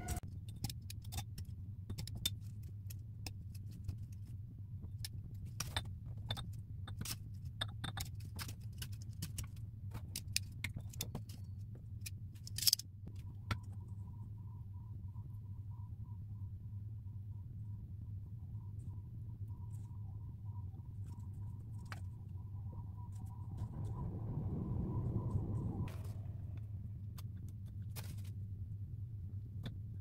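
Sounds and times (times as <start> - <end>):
steady low hum: 13.0 - 30.0
faint wavering tone: 14.0 - 26.8.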